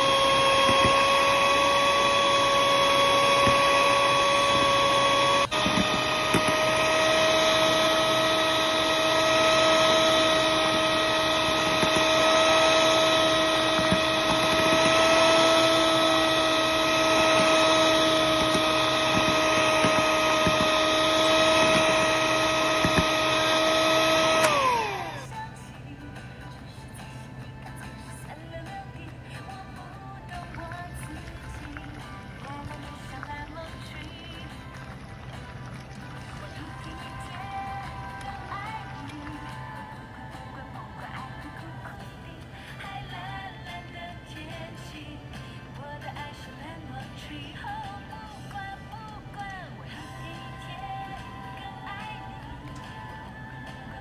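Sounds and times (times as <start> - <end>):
electric hand mixer whining: 0.0 - 25.4, 30.2 - 41.7.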